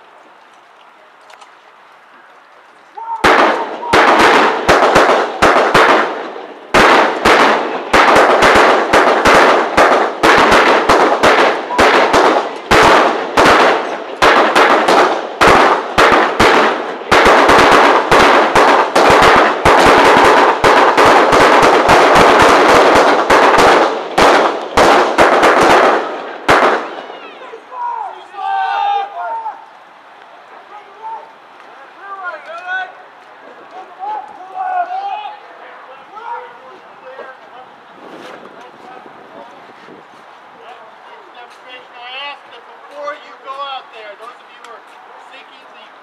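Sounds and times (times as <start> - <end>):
rapid gunfire volley: 3.2 - 27.0.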